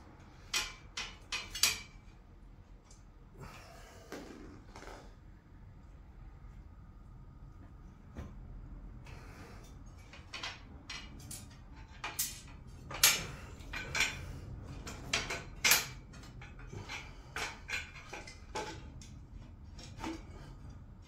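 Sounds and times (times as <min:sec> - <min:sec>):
metal plates and bolts clinking: 0:10.0 - 0:20.4.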